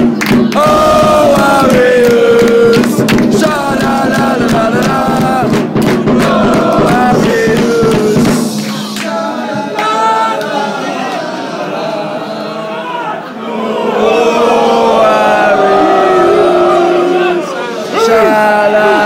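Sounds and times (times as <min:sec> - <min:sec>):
hand claps: 0:00.0 - 0:11.2
crowd singing a chant: 0:00.0 - 0:19.0.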